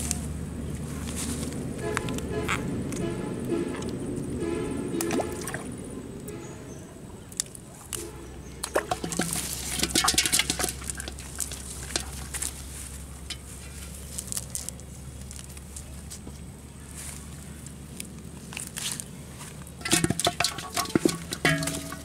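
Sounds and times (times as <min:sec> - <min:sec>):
clicks and splashy crackles: 0:07.3 - 0:15.8, 0:17.9 - 0:22.0
fish flapping in a metal pot: 0:08.6 - 0:12.6, 0:19.8 - 0:22.0.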